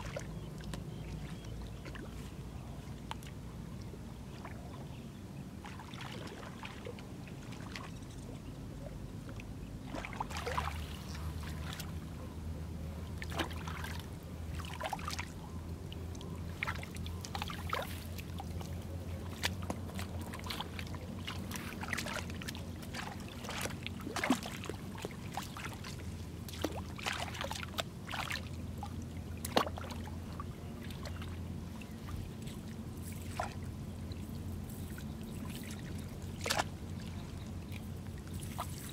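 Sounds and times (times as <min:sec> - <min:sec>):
low steady hum: 0:00.0 - 0:38.9
muddy water splashing and sloshing: 0:00.0 - 0:38.9.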